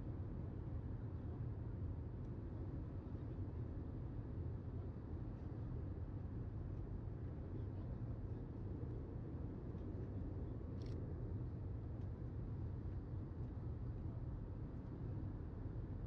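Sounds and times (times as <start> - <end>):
faint click: 10.8 - 11.0.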